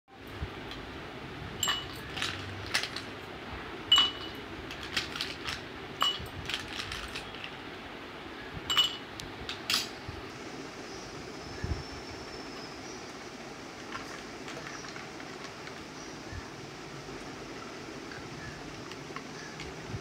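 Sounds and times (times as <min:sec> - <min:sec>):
ice cubes clinking in glass: 0:01.6 - 0:03.1, 0:03.9 - 0:07.6.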